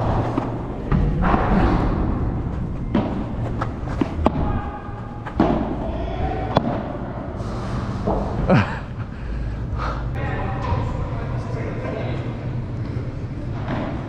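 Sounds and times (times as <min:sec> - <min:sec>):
ball bouncing on court and walls: 0:00.0 - 0:05.9, 0:06.5 - 0:07.0.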